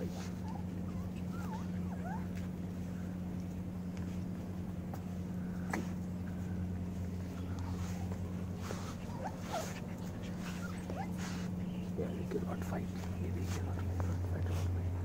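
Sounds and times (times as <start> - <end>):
puppies squeaking and yelping: 0.0 - 3.5, 7.2 - 14.2
rustling: 0.0 - 15.0
steady low hum: 0.0 - 15.0.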